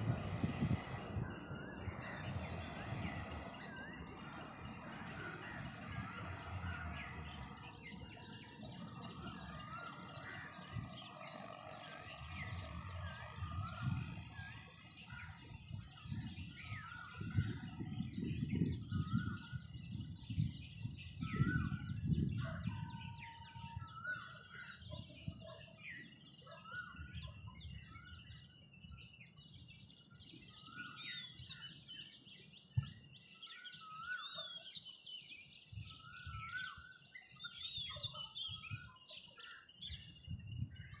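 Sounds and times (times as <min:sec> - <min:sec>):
low rumbling noise: 0:00.0 - 0:16.4
small birds chirping: 0:00.0 - 0:41.0.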